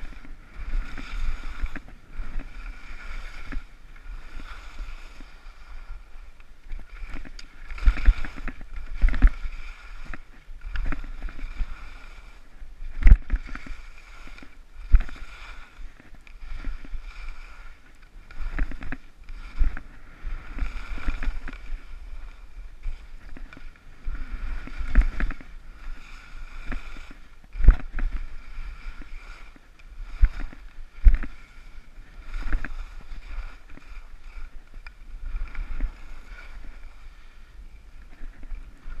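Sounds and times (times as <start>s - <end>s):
skis scraping over snow: 0.0s - 39.0s
heavy thumps of skis: 12.9s - 34.9s.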